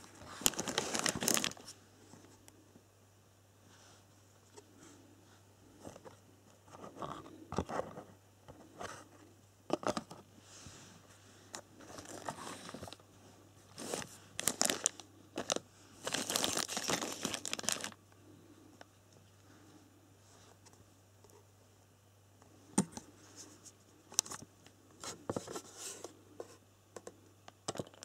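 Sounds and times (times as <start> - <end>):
plastic bags crinkling: 0.0 - 1.8, 11.8 - 13.0, 13.7 - 18.0.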